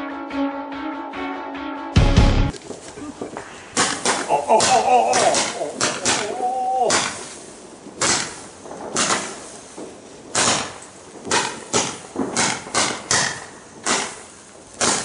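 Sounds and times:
firework bangs: 2.6s - 15.0s.

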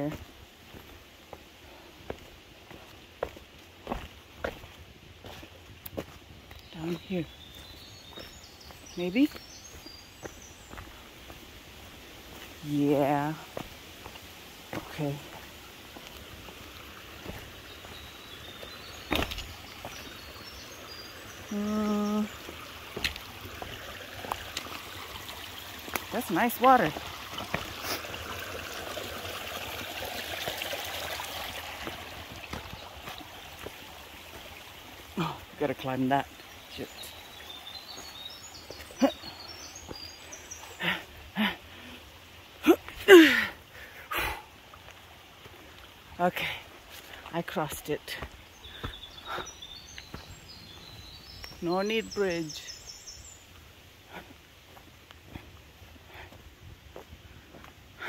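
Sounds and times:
footsteps on loose stones: 0.0s - 21.0s, 22.2s - 25.0s, 25.9s - 28.0s, 31.8s - 34.5s, 46.8s - 52.6s, 54.2s - 57.8s
stream rushing: 0.0s - 52.8s
bird singing: 2.7s - 11.4s, 17.2s - 23.2s, 35.2s - 43.5s, 46.2s - 56.0s
person humming: 21.5s - 22.3s
woman grunting with effort: 42.6s - 44.4s.

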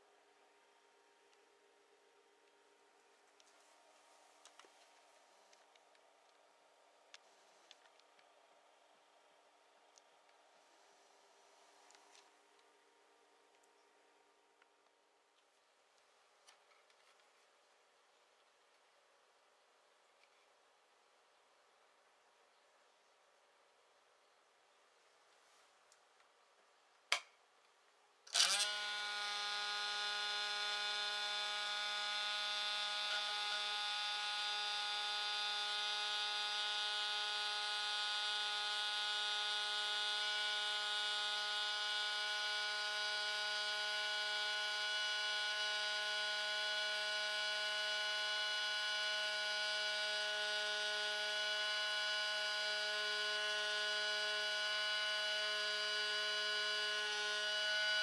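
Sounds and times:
electric motor whining: 28.3s - 58.0s.

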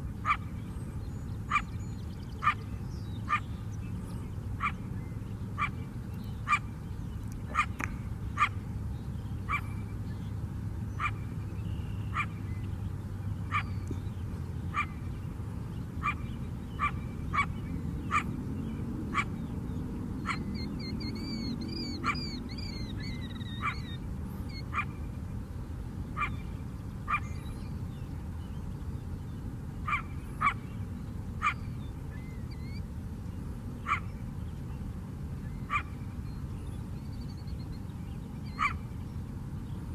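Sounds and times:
coyote barking: 0.2s - 0.5s, 1.5s - 1.8s, 2.4s - 2.6s, 4.6s - 4.8s, 5.6s - 5.8s, 6.4s - 6.7s, 7.5s - 7.8s, 8.4s - 8.6s, 9.5s - 9.8s, 11.0s - 11.3s, 12.1s - 12.4s, 13.4s - 13.8s, 14.7s - 15.0s, 16.0s - 18.3s, 19.1s - 19.3s, 20.2s - 25.0s, 26.2s - 26.5s, 27.1s - 27.4s, 29.8s - 30.7s, 31.4s - 31.7s, 33.8s - 34.2s, 35.7s - 36.0s, 38.5s - 38.8s.

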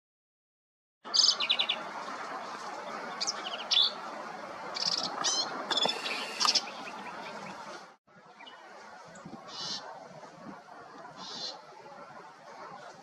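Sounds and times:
bird singing rapid high notes: 4.8s - 7.6s.

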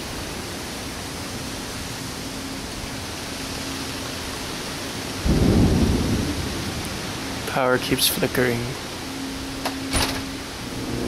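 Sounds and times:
heavy rain: 0.0s - 11.0s
thunder rumble: 5.2s - 11.0s.

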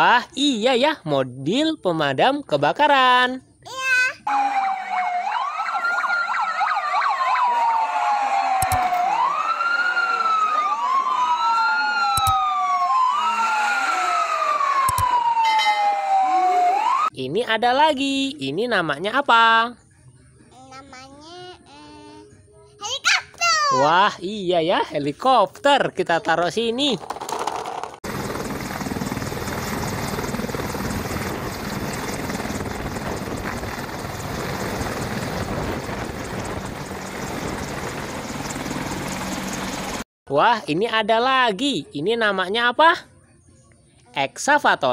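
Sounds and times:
fire engine sirens wailing: 4.3s - 17.1s
short clicks: 12.2s - 12.4s, 14.9s - 15.1s
helicopter rotors chopping: 26.8s - 40.0s
helicopter engine noise: 27.0s - 40.0s.

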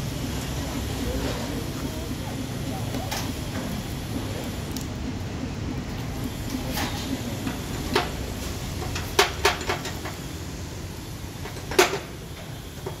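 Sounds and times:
steady low rumble: 0.0s - 9.0s.

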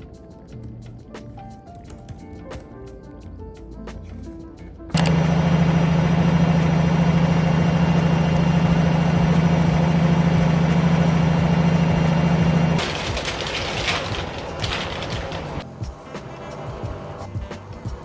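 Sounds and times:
range hood extractor fan: 5.0s - 15.6s.

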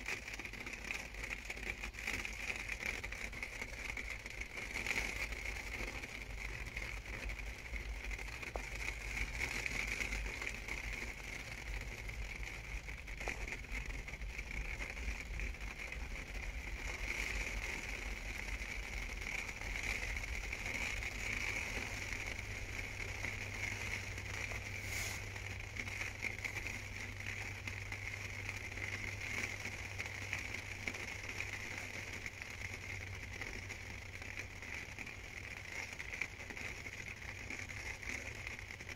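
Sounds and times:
rain pattering on camper: 0.0s - 38.9s.

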